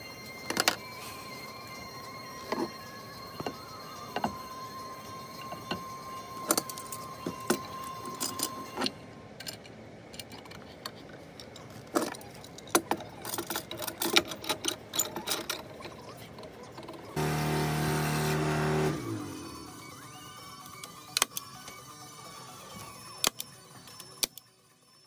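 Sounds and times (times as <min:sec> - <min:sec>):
background music: 0:00.0 - 0:09.2, 0:17.2 - 0:25.0.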